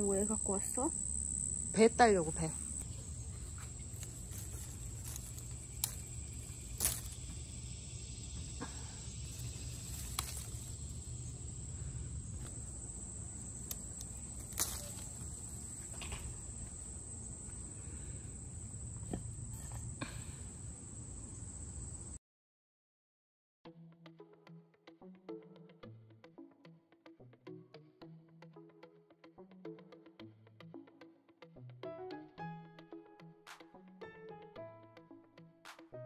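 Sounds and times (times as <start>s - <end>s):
high-pitched insect chorus: 0.0s - 22.2s
leaves and branches rustling: 2.8s - 7.8s, 8.4s - 20.2s.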